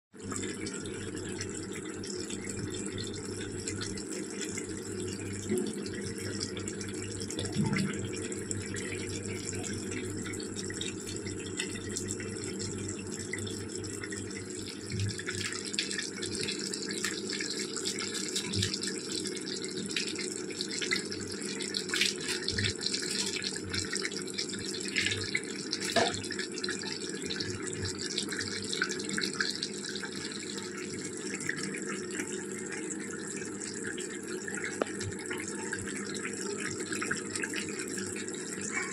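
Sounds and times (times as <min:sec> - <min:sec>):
curry bubbling and popping: 0:00.2 - 0:38.9.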